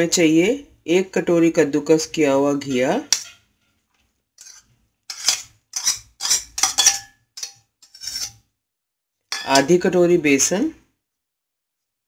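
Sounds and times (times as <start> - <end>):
metal spoon scraping bowls: 2.6 - 3.8, 4.4 - 8.5, 9.3 - 9.9.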